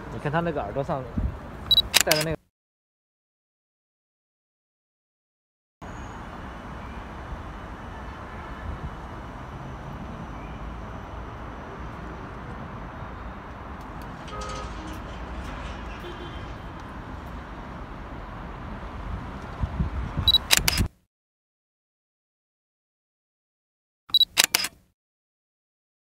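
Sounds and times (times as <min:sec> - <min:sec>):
hum of vehicle engines: 0:05.8 - 0:21.0.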